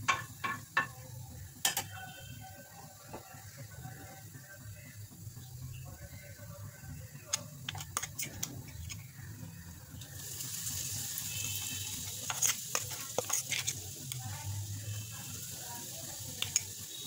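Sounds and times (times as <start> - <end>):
seeds crackling in hot oil: 0.0 - 17.0
paste sizzling in oil: 7.1 - 17.0.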